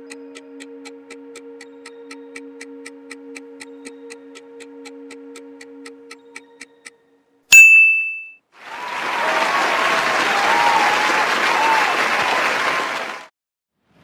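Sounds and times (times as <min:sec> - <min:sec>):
bright bell ding: 0:07.5 - 0:08.4
crowd applauding and cheering: 0:08.6 - 0:13.3.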